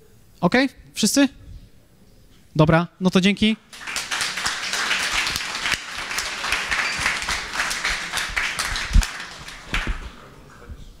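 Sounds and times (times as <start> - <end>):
crowd applause: 3.7 - 10.3.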